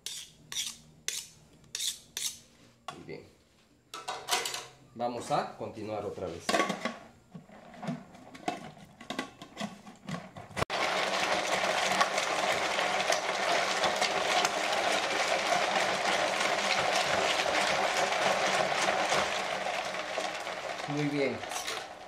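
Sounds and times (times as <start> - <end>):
ice cream maker running: 10.7 - 22.0.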